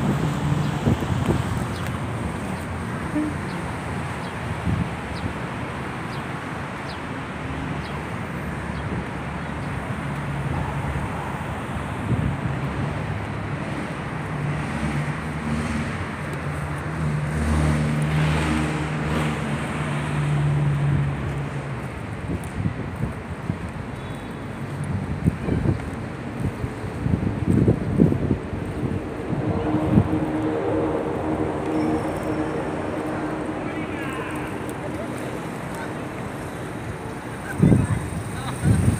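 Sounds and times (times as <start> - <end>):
vehicle engine hum: 0.0 - 38.9
traffic hiss: 29.3 - 38.9.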